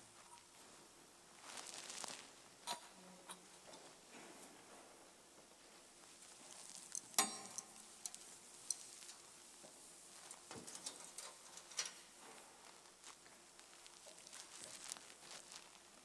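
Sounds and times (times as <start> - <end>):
metal vessels clinking: 6.9 - 9.2.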